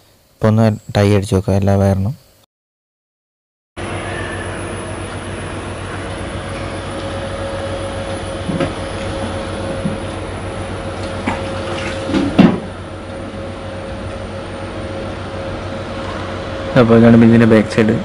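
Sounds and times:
fan whirring: 3.8s - 18.0s
low hum: 3.8s - 18.0s.

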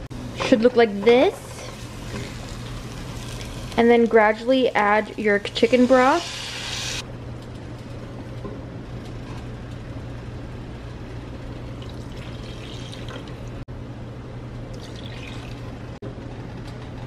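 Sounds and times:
liquid pouring into saucepan: 11.7s - 13.4s, 14.7s - 15.7s.

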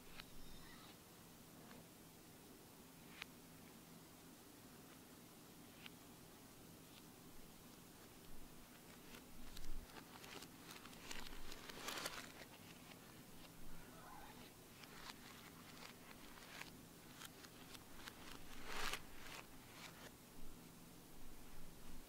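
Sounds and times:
plastic packet crinkling reversed: 8.9s - 13.6s, 14.7s - 20.1s.

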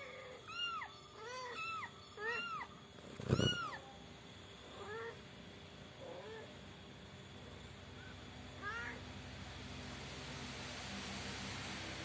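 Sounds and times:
kitten mewing: 1.5s - 3.8s.

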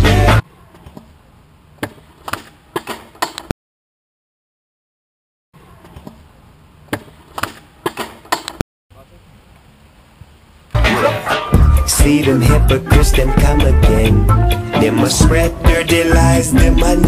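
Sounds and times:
music: 0.0s - 0.4s, 10.8s - 17.0s
faint outdoor background: 0.0s - 3.5s, 5.6s - 17.0s.

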